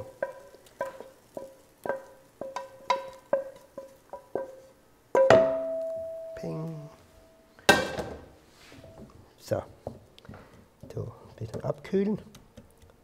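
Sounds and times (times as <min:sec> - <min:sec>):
pan clanging: 0:00.0 - 0:04.6, 0:05.2 - 0:06.6
wooden spatula knocking metal pan: 0:00.0 - 0:04.6, 0:05.2 - 0:06.2.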